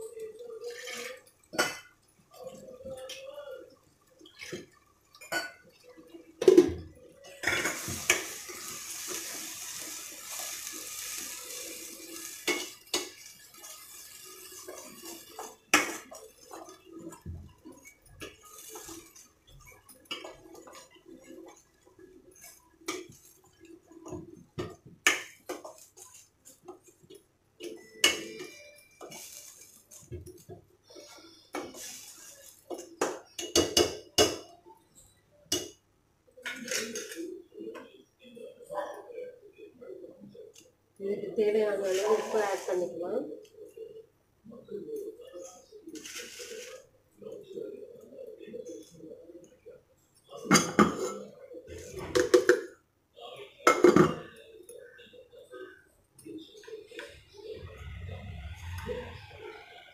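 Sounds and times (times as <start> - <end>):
utensils clinking on metal pan: 6.5 - 21.8, 27.7 - 30.2
liquid hissing in hot pan: 7.4 - 21.6, 31.0 - 32.8.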